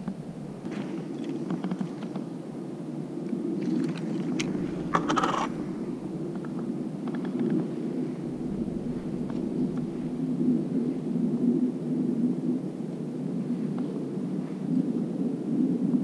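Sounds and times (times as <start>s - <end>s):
low background rumble: 0.0s - 14.3s
fishing tackle clicking and scraping: 3.8s - 5.5s.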